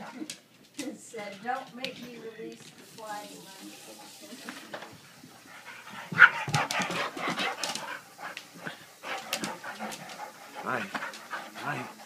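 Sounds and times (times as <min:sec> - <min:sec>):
dog panting: 0:03.1 - 0:12.0
dog vocal noises: 0:05.4 - 0:12.0.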